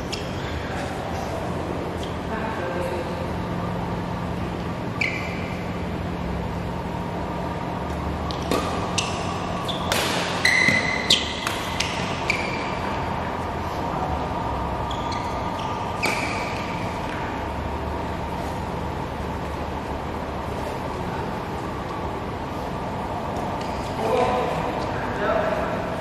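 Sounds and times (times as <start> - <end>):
steady background hum: 0.0 - 26.0
badminton racket hitting shuttlecock: 8.3 - 12.7.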